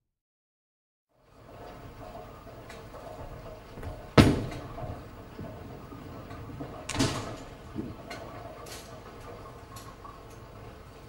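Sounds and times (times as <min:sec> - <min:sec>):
steady background noise: 0:01.2 - 0:11.0
bowling ball heavy impact: 0:03.3 - 0:08.1.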